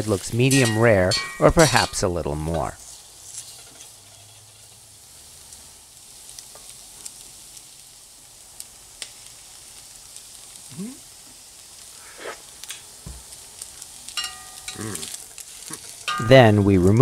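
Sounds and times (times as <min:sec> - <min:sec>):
meat sizzling in hot oil: 0:00.0 - 0:17.0
metal spatula scraping iron: 0:00.3 - 0:02.6, 0:03.4 - 0:04.8.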